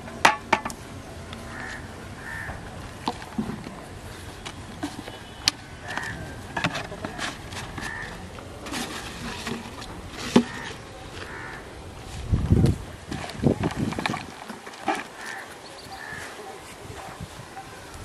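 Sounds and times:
plastic bottle and bag rustling: 0:02.8 - 0:17.2.

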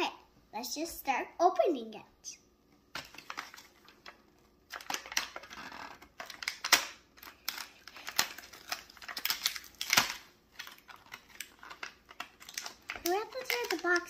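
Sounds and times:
plastic packaging crinkling: 0:02.9 - 0:14.0
plastic snapping: 0:02.9 - 0:14.0.

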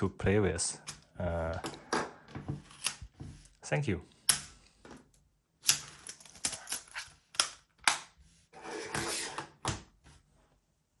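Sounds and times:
plastic keyboard clicks and snaps: 0:05.6 - 0:08.1
plastic rubbing slide: 0:08.4 - 0:09.6.

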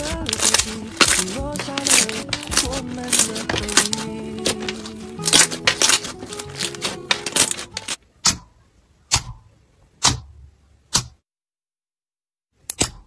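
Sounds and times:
background music: 0:00.0 - 0:08.0
hands kneading slime: 0:00.0 - 0:08.0
slime popping: 0:00.0 - 0:08.0.

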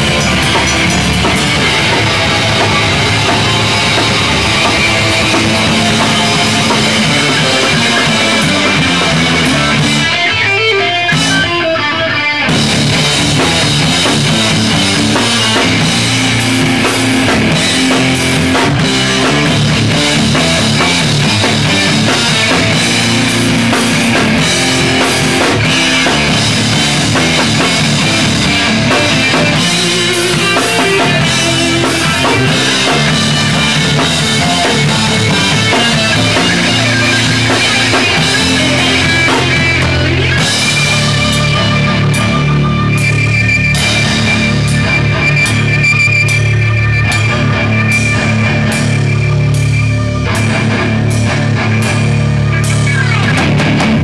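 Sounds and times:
drum kit with cymbals: 0:00.0 - 0:11.7, 0:12.4 - 0:54.0
distorted electric guitars: 0:00.0 - 0:54.0
electric bass: 0:00.0 - 0:54.0.

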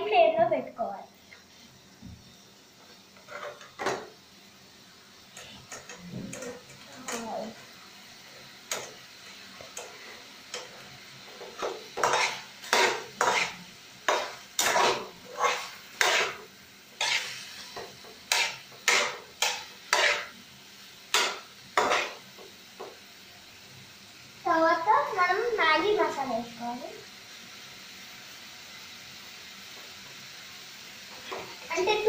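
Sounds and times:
vegetables stir-frying: 0:00.0 - 0:32.0
ladle scraping metal pan: 0:12.0 - 0:16.4, 0:17.0 - 0:17.6.

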